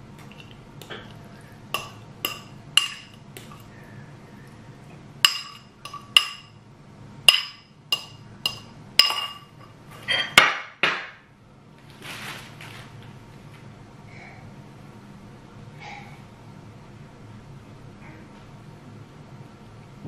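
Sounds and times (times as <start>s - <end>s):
fork clinking on ceramic bowl: 1.8s - 3.7s, 5.2s - 6.5s, 7.3s - 10.4s
plastic bag rustling: 11.9s - 13.0s.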